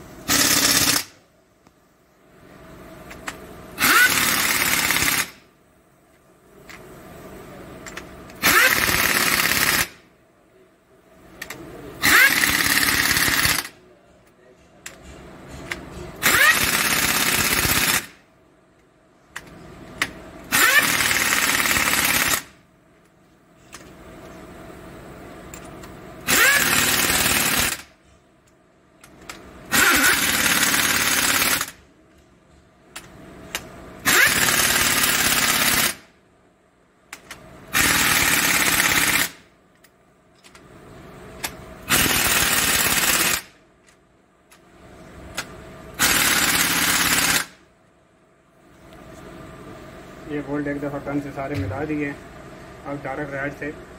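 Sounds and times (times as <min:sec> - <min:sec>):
impact wrench hammering bolts: 0:14.9 - 0:18.1, 0:19.4 - 0:22.4.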